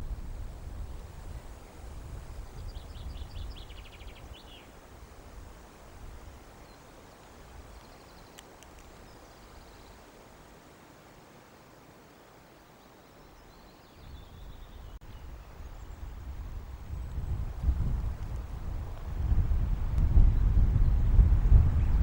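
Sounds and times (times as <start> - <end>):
click: 7.8 - 9.0.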